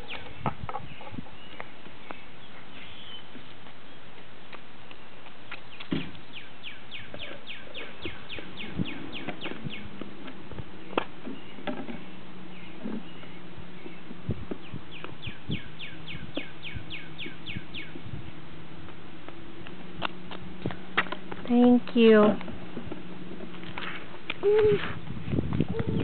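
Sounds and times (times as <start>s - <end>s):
bird chirping: 0.0s - 4.1s, 4.9s - 10.1s, 10.8s - 18.0s.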